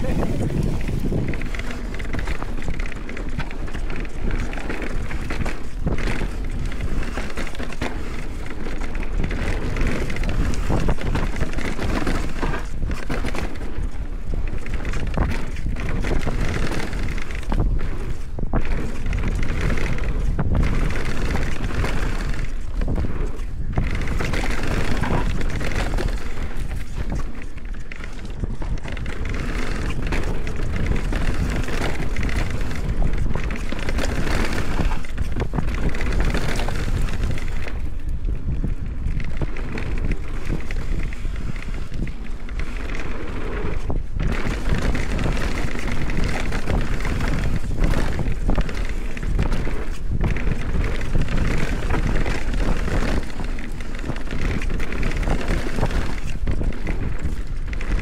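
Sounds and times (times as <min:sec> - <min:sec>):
bike rattling clicks: 0:00.0 - 0:58.0
tyre noise on trail: 0:00.0 - 0:58.0
wind on microphone: 0:00.0 - 0:58.0.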